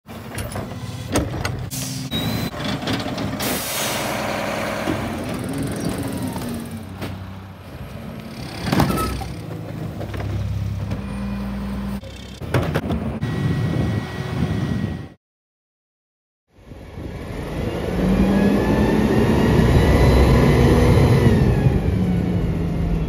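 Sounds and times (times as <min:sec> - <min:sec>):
truck engines running: 0:00.1 - 0:15.1.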